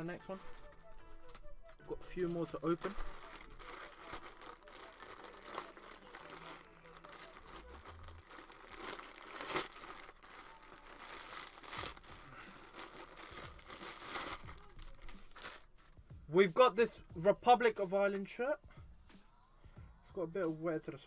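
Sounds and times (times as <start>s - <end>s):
packaging crinkling and rustling: 2.1s - 15.9s
packaging ripping: 2.4s - 15.8s.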